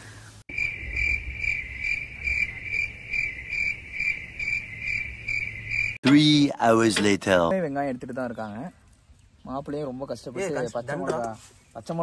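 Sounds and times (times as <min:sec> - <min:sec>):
insect trilling: 0:00.5 - 0:06.0.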